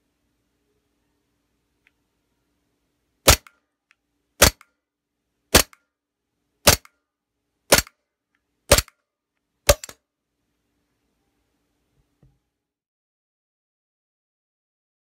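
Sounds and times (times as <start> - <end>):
faint click: 1.8 - 2.0
airsoft pistol shots: 3.3 - 3.5, 4.4 - 4.6, 5.5 - 5.8, 6.7 - 6.9, 7.7 - 8.0, 8.7 - 8.9, 9.7 - 10.0.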